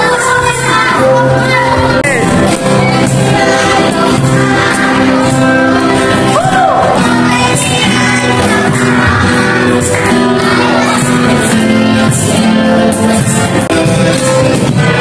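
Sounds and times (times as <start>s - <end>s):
children singing: 0.0s - 15.0s
strummed acoustic guitar: 0.0s - 15.0s
voice whooping: 6.4s - 7.0s
clapping along: 8.4s - 11.7s.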